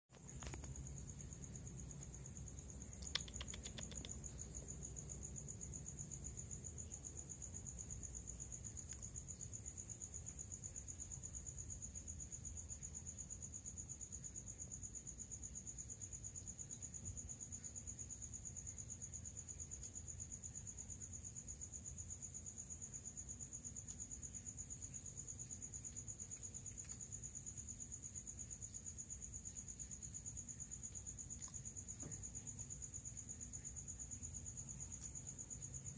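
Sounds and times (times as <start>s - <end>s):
crickets trilling: 0.1s - 35.9s
sharp click: 3.0s - 4.2s.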